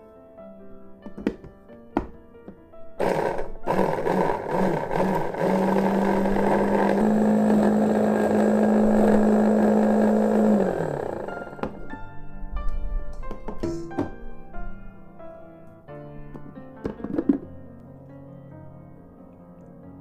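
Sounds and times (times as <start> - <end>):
light knocks: 1.0 - 2.6
food chopper motor running: 3.0 - 11.8.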